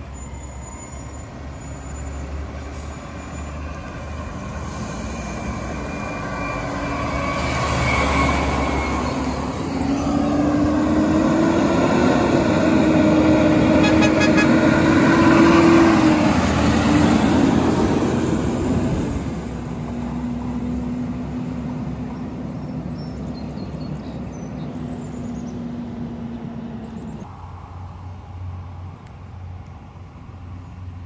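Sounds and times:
garbage truck diesel engine: 0:00.0 - 0:22.6.

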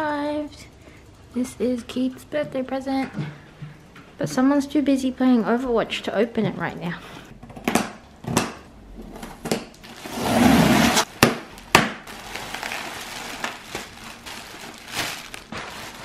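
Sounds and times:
plastic packing crinkling: 0:09.7 - 0:16.0
cardboard rustling: 0:09.8 - 0:11.3, 0:12.1 - 0:16.0.

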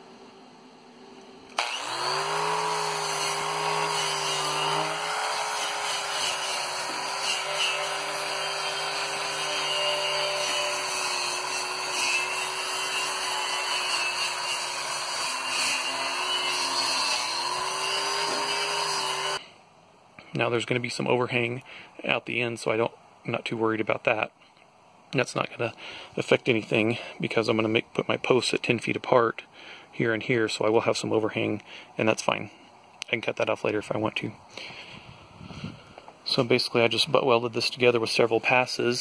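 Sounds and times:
angle grinder grinding steel: 0:01.6 - 0:19.4.

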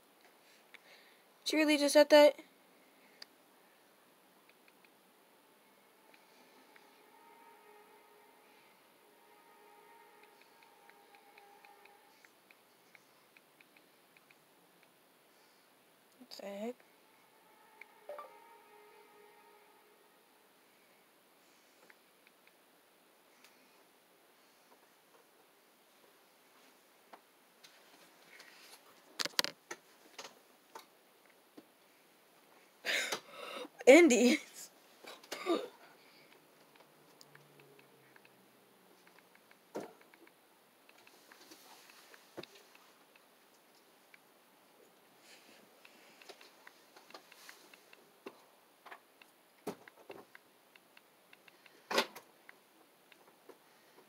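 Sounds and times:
faint clicks and taps: 0:39.0 - 0:54.0.

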